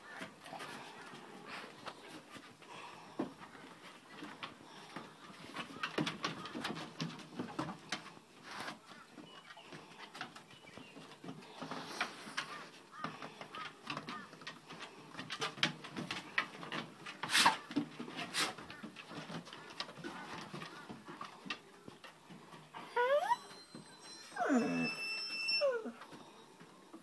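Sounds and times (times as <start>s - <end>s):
dog whining: 22.8s - 26.2s.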